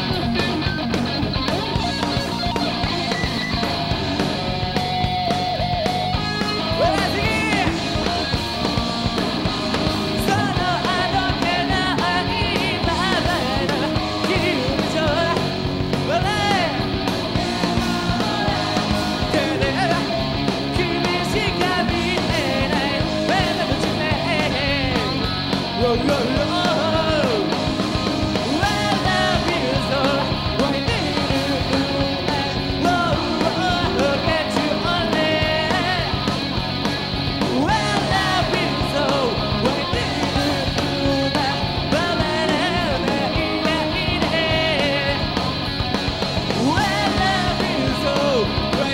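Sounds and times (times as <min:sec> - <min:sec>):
live rock band playing: 0:00.0 - 0:48.9
lead vocalist singing: 0:06.1 - 0:36.6, 0:37.4 - 0:45.4, 0:46.4 - 0:48.9.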